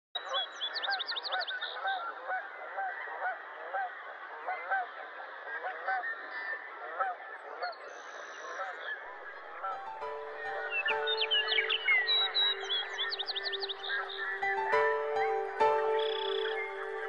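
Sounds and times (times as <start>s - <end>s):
many birds calling: 8.5s - 17.0s
high bird chirps: 9.6s - 17.0s.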